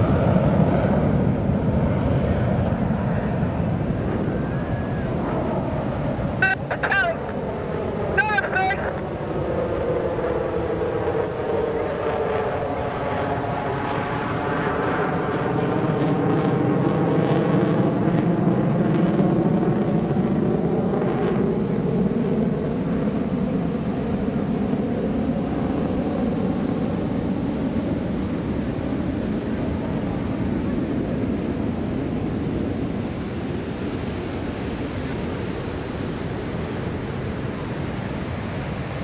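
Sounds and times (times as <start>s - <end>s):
jet flying past: 0.0s - 39.0s.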